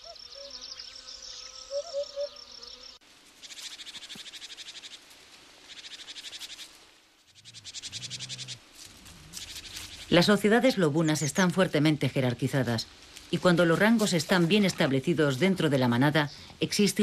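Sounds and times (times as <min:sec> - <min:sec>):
insects chirping in high pulses: 0:00.0 - 0:08.8.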